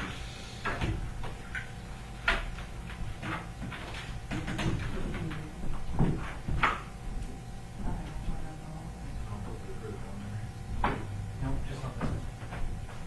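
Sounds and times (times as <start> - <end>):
knocks and thuds: 10.7 - 11.2.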